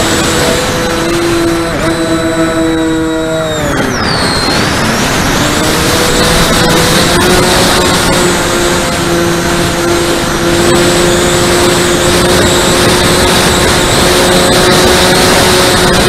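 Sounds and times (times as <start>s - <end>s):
model plane motors humming: 0.0s - 16.0s
wind rush on microphone: 0.0s - 16.0s.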